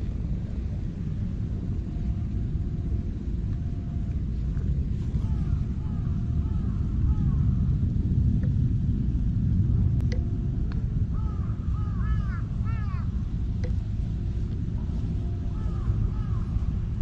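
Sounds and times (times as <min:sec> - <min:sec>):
low outdoor rumble: 0:00.0 - 0:17.0
bird calling: 0:11.1 - 0:13.2, 0:15.5 - 0:16.7
light clicks: 0:13.6 - 0:13.8.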